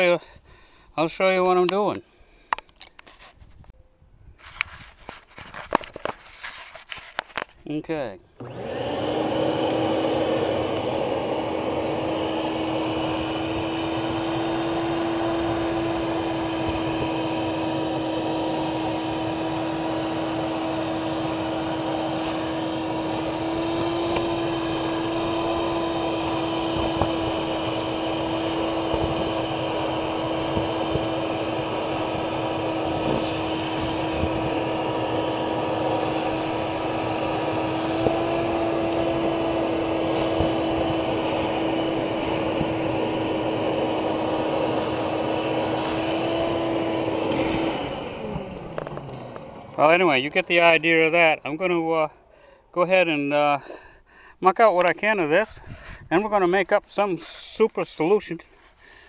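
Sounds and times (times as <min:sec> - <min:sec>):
hose sucking water: 0:08.4 - 0:51.3
wet dry vacuum running: 0:08.4 - 0:52.1.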